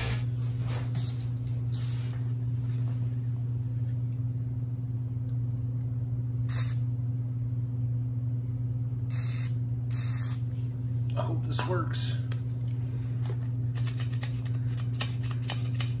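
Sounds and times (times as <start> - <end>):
low electrical hum: 0.0 - 16.0
aerosol spray hissing: 6.5 - 6.8, 9.1 - 10.4.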